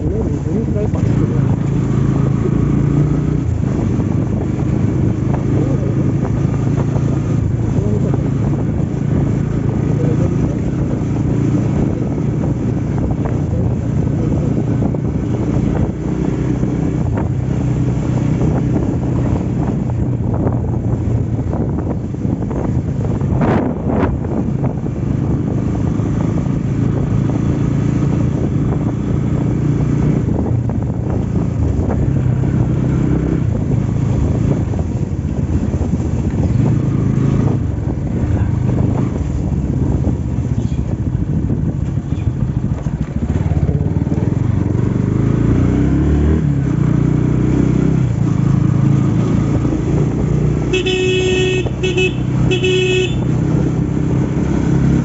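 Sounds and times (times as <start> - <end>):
motorcycle engine running: 0.0 - 55.0
vehicle horn tooting: 50.7 - 53.4.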